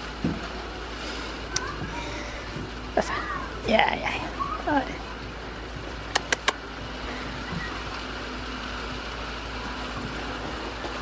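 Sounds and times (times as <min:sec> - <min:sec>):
sharp clicks: 0:06.1 - 0:06.6.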